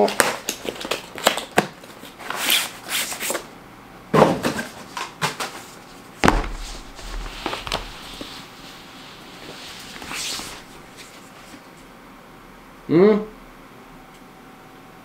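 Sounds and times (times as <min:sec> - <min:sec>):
knocks of rolled mat: 0:06.2 - 0:08.3
mat sliding out of cardboard box: 0:06.2 - 0:11.1.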